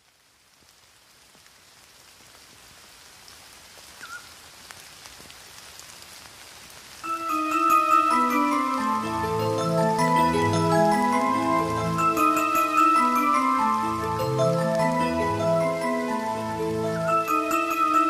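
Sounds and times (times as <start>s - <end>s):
light rain pattering: 0.0s - 18.0s
music with held notes: 7.1s - 18.0s.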